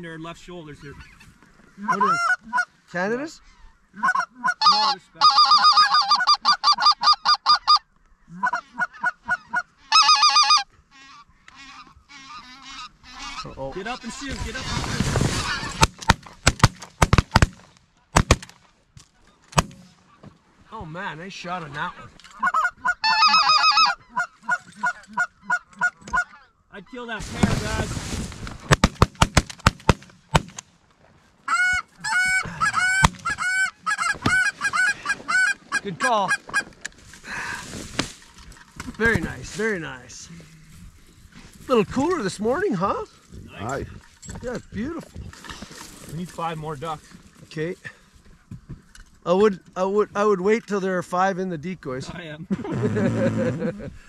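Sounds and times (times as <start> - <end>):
goose honking and clucking: 0.8 - 2.8, 3.5 - 16.0, 21.9 - 27.1, 31.5 - 36.9
shotgun shots: 15.8 - 18.6, 28.7 - 30.6.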